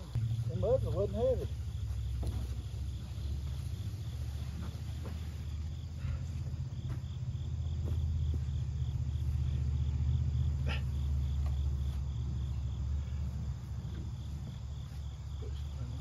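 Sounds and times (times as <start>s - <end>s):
crickets chirping: 0.0s - 16.0s.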